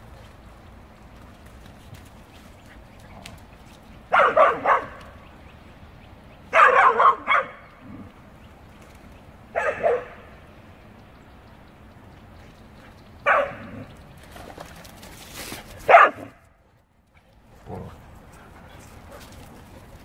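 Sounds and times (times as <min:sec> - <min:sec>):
dogs barking: 0:04.1 - 0:05.2, 0:06.5 - 0:08.1, 0:09.5 - 0:10.4, 0:13.2 - 0:13.9, 0:15.8 - 0:16.5.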